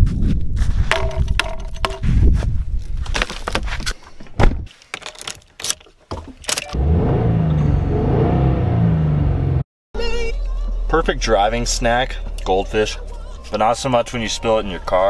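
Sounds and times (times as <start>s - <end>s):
car engine starting and running: 6.5s - 15.0s.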